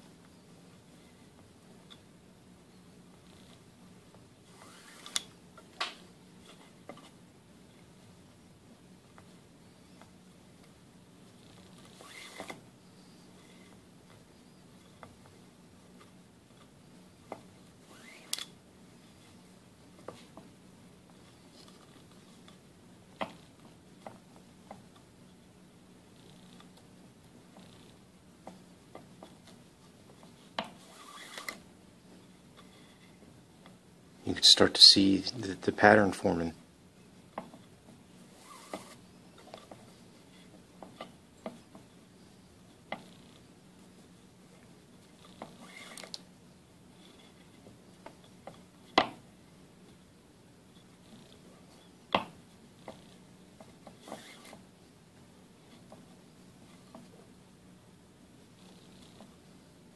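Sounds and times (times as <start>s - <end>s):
faint steady hum: 0.0s - 59.9s
cord swishing: 4.5s - 5.3s, 11.6s - 12.6s, 38.3s - 39.8s, 53.8s - 54.6s
cord rubs and light clicks: 4.5s - 7.2s, 21.1s - 22.6s, 37.3s - 41.9s, 44.6s - 46.3s, 50.7s - 54.7s.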